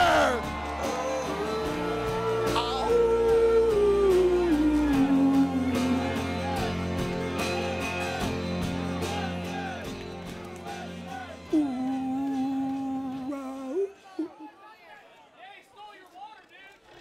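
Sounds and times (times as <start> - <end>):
song with singing and guitar: 0.0 - 10.0, 10.6 - 13.9.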